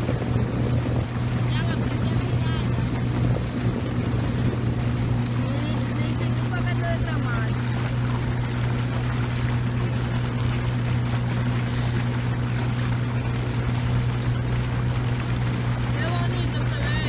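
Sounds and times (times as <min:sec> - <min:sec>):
boat engine humming: 0:00.0 - 0:17.0
water splashing along hull: 0:00.0 - 0:17.0.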